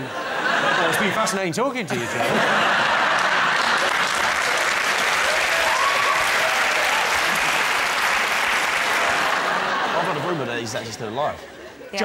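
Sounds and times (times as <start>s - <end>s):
audience applauding: 2.3s - 10.3s.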